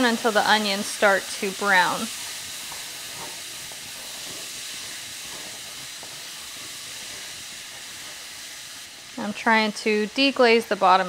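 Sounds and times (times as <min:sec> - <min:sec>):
onions sizzling in fat: 0:00.0 - 0:11.0
wooden spoon stirring: 0:02.1 - 0:08.5.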